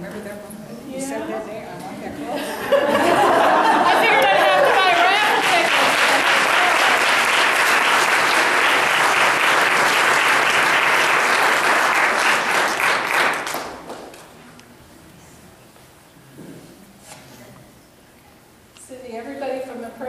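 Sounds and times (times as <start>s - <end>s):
congregation applauding: 3.8s - 14.3s.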